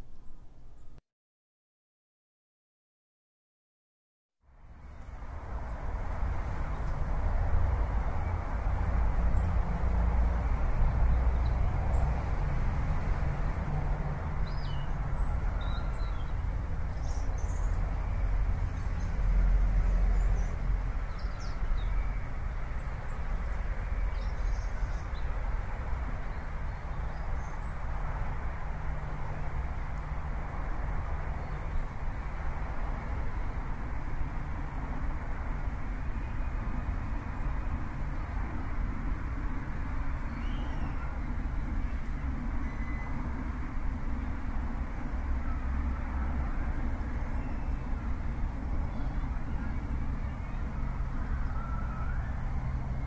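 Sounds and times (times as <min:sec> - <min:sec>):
faint bird chirps: 0:42.6 - 0:43.2, 0:48.8 - 0:52.4.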